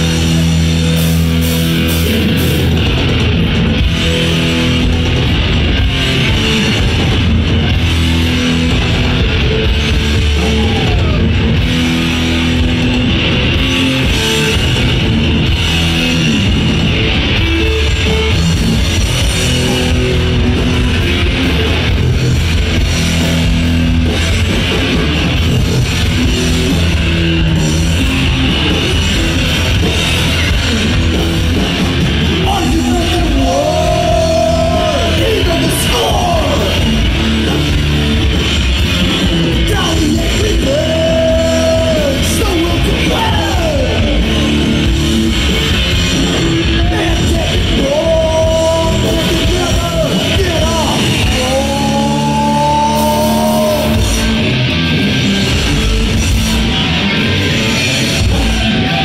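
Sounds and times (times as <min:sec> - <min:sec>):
thrash band playing live: 0:00.0 - 0:59.0
shouted vocal: 0:10.3 - 0:11.6, 0:32.4 - 0:37.0, 0:39.6 - 0:44.5, 0:46.8 - 0:54.4, 0:58.0 - 0:59.0.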